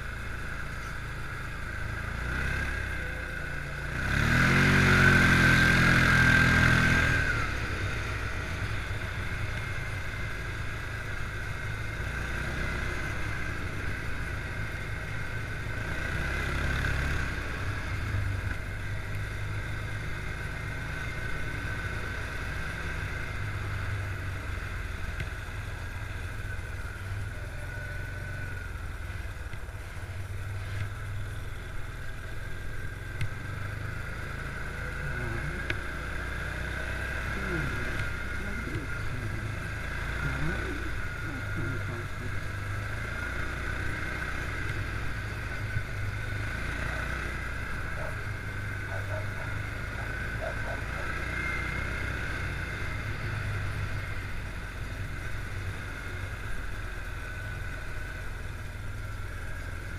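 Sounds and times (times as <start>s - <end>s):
quad bike engine revving: 1.3s - 29.3s, 30.5s - 59.9s.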